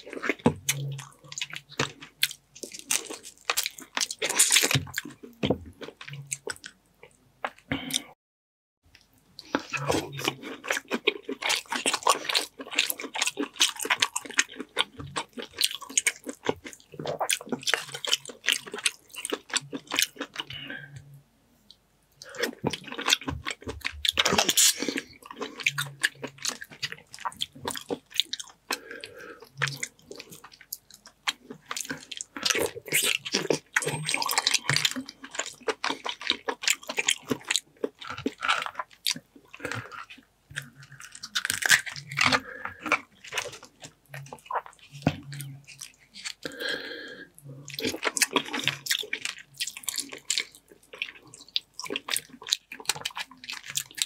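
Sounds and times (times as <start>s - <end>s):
wet squishing and chewing: 0.0s - 8.1s, 8.9s - 21.1s, 21.7s - 54.0s
crab shells cracking: 40.6s - 44.0s.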